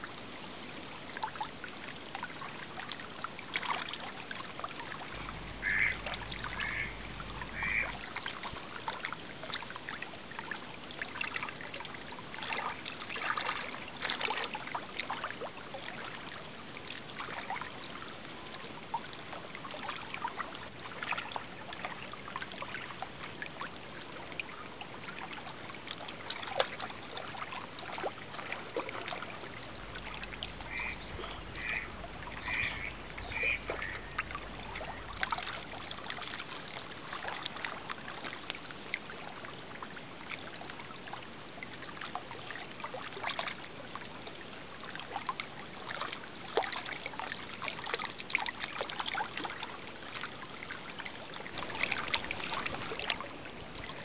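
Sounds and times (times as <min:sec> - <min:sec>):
bird calling: 0:05.2 - 0:08.0, 0:29.7 - 0:36.0
small waves lapping on shore: 0:05.2 - 0:08.2, 0:28.4 - 0:36.5, 0:51.5 - 0:54.0.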